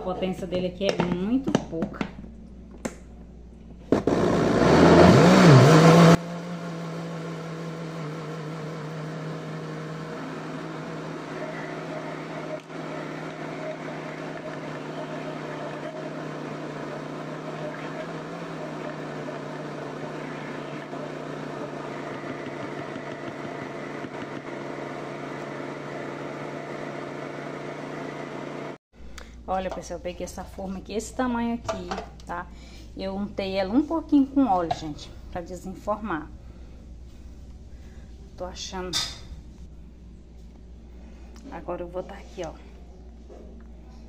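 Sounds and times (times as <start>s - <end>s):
kitchen blender running: 3.9s - 28.8s.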